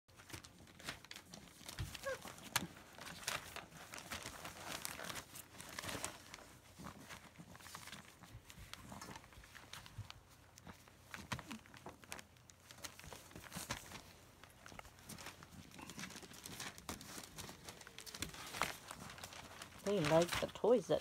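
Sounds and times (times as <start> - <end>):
newspaper rustling: 0.1 - 21.0
puppies scrabbling: 1.3 - 3.5.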